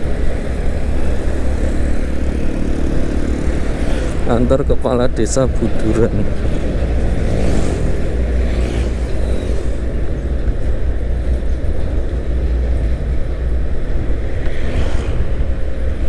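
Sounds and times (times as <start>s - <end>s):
wind on microphone: 14.0s - 16.0s.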